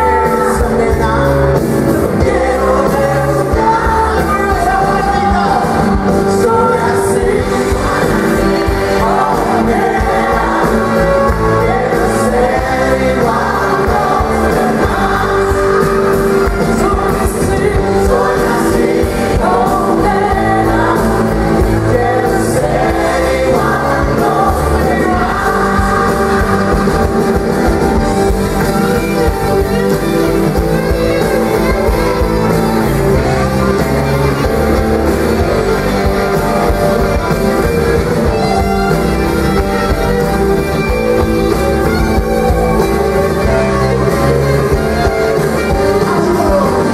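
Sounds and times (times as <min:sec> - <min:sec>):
gospel choir singing: 0:00.0 - 0:28.3
woman singing lead: 0:00.0 - 0:37.6
live pop-rock band: 0:00.0 - 0:46.9.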